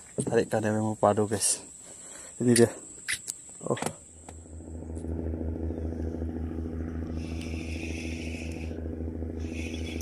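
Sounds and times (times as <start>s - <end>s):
outboard motor droning: 4.0s - 10.0s
high hiss: 7.1s - 10.0s.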